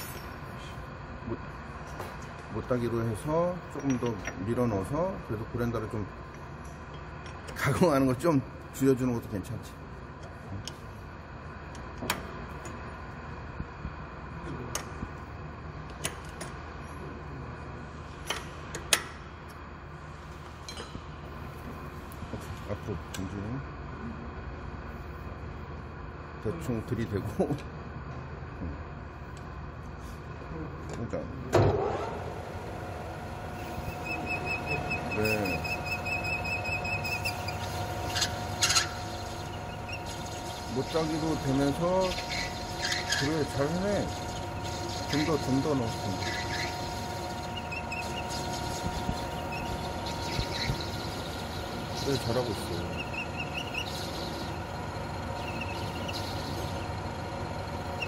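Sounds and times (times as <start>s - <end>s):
low machine hum: 0.0s - 58.0s
lathe drive whine: 31.5s - 58.0s
cutting tool squealing on steel: 33.6s - 54.6s, 55.4s - 56.8s.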